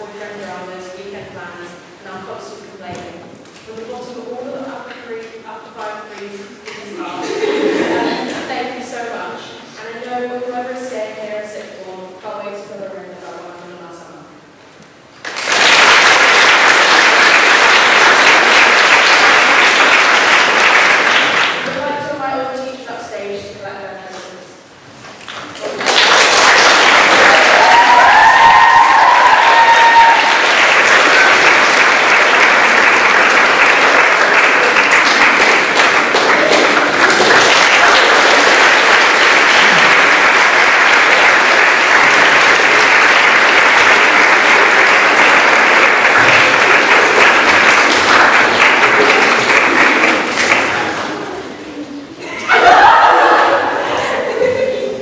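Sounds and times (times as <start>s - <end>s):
audience applauding: 15.2s - 21.8s, 25.2s - 51.4s.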